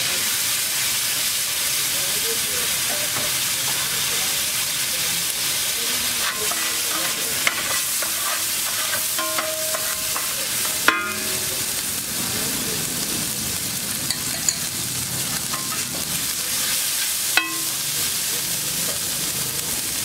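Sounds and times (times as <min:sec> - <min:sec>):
egg mixture sizzling on griddle: 0:00.0 - 0:20.0
metal spatula scraping griddle: 0:05.9 - 0:12.1, 0:14.2 - 0:18.1.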